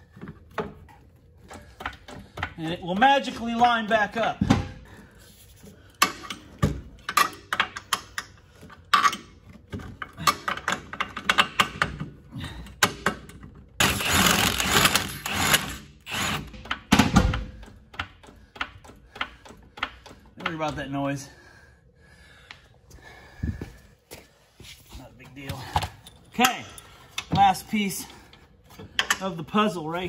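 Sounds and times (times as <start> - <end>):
metal tools clicking and clanking: 6.0 - 12.1, 25.4 - 29.9.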